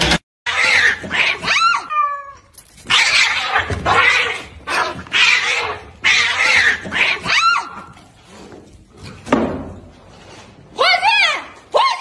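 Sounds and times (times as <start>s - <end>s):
cats screeching and hissing: 0.5s - 8.2s.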